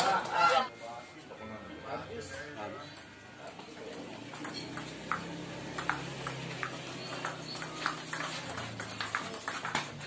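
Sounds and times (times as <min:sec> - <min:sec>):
table tennis ball clicking: 0:04.3 - 0:09.9.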